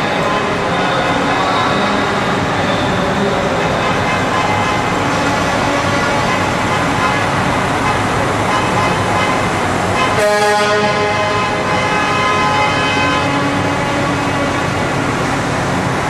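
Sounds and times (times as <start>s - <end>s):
truck engines running: 0.0s - 16.0s
truck horn blast: 3.7s - 14.8s.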